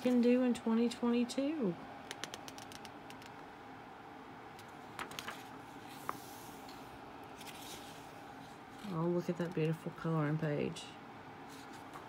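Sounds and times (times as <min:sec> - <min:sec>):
magazine pages turning: 0:04.6 - 0:06.4, 0:07.3 - 0:08.1.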